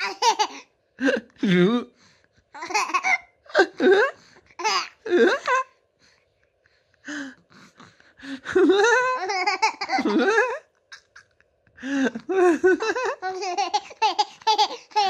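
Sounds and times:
baby laughing: 0.0s - 0.6s, 2.6s - 3.8s, 4.6s - 5.6s, 8.6s - 11.4s, 12.3s - 15.0s.

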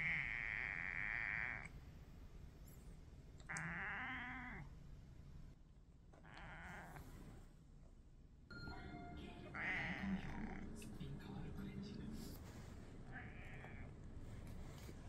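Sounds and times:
cat giving raspy calls: 0.0s - 1.7s, 3.5s - 4.7s, 6.2s - 7.0s, 9.5s - 10.7s, 13.0s - 13.9s.

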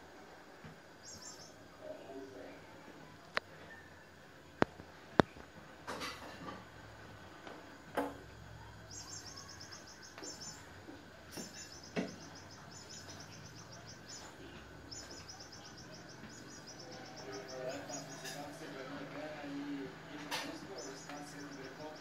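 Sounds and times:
high bird-like chirping: 1.0s - 1.6s, 8.8s - 19.3s, 20.1s - 22.0s.

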